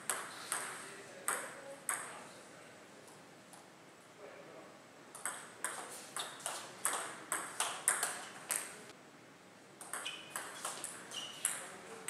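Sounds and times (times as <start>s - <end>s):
table tennis ball clicking: 9.8s - 11.6s.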